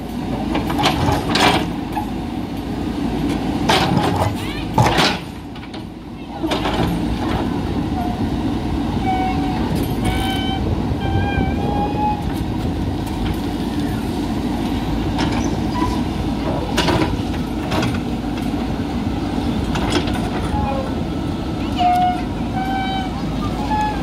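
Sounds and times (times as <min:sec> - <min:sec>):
diesel engine under load: 0:00.0 - 0:24.0.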